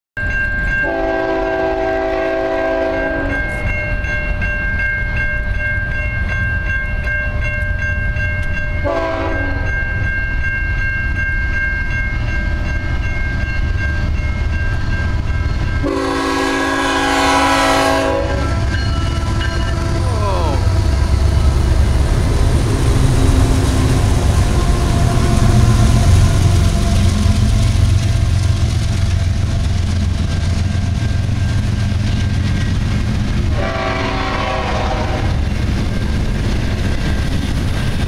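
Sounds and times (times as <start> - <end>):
crossing warning bell ringing: 0.2 - 38.0
train engine rumble: 0.2 - 38.0
locomotive horn blasts: 0.8 - 3.5, 8.8 - 9.7, 15.8 - 20.0, 33.5 - 35.4.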